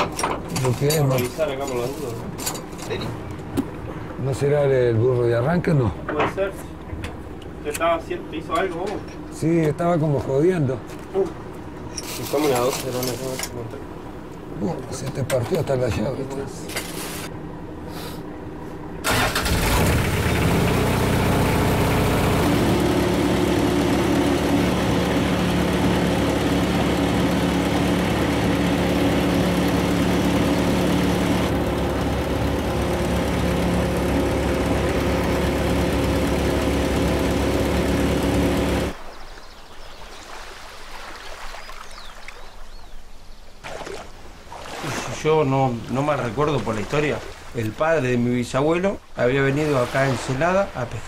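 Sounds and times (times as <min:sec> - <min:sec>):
boat engine running: 0:00.0 - 0:17.3, 0:19.0 - 0:39.1.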